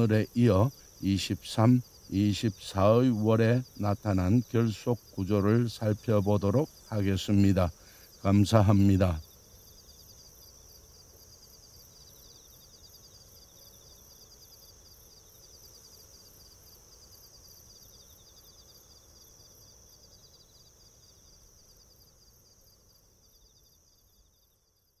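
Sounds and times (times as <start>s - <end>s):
insects trilling: 0.0s - 25.0s.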